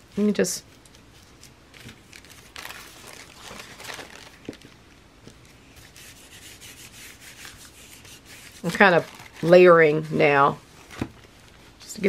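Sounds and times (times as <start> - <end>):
hand rubbing on paper: 5.8 - 9.1
paintbrush stroking paint: 5.8 - 9.7.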